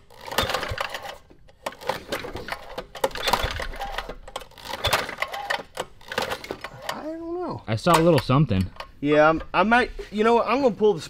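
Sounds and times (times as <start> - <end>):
recoil starter rattling: 0.0 - 7.0.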